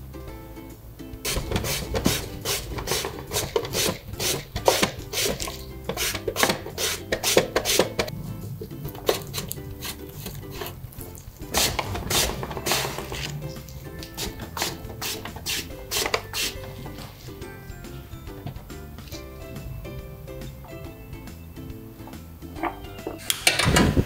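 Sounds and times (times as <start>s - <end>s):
soft background music: 0.0s - 24.0s
potato scraping on a grater: 1.3s - 8.1s, 8.8s - 17.4s.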